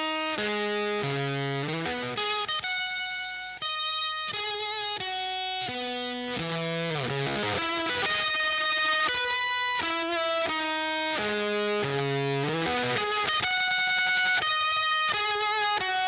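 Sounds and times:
fuzzed electric guitar notes: 0.0 - 16.0.

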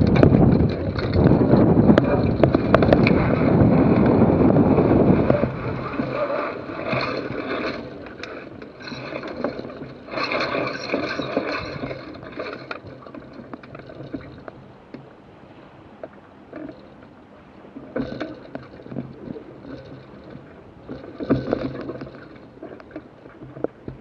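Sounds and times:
wind rushing: 0.0 - 6.8
sailcloth and rigging rustling: 0.0 - 24.0.

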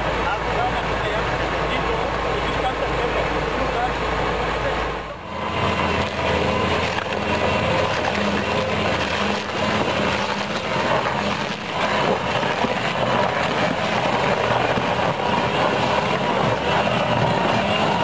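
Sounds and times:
tractor engine running: 0.0 - 18.0
stump grinder chewing wood: 5.2 - 18.0.

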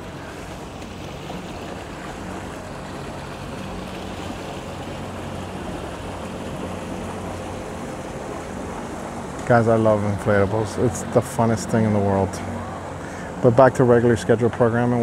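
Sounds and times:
boat engine idling: 0.0 - 15.0
water noise: 0.0 - 15.0
wind: 0.0 - 15.0.

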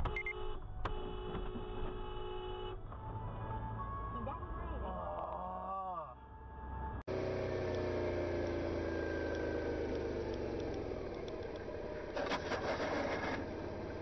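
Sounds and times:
road noise: 0.0 - 14.0
vehicle engine running: 7.0 - 14.0.

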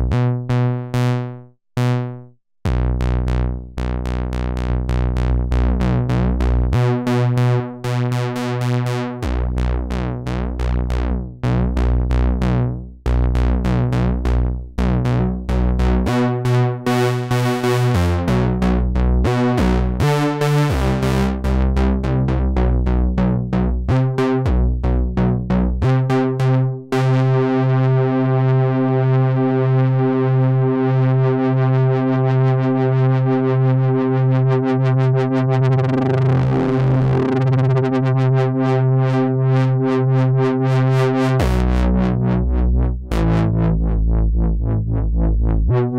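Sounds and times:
synthesizer playing notes: 0.0 - 28.6, 35.4 - 38.2.

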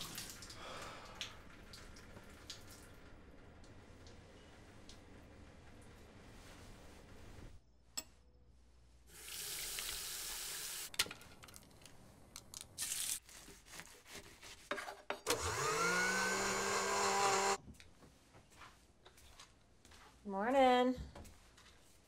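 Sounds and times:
blender motor running: 15.3 - 17.6.

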